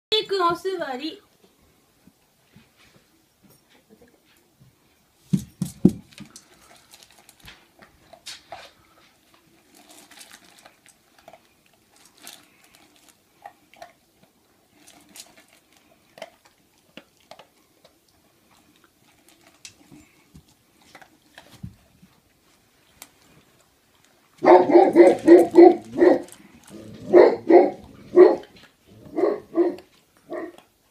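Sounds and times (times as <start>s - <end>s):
dog crunching kibble in bowl: 5.6s - 30.8s.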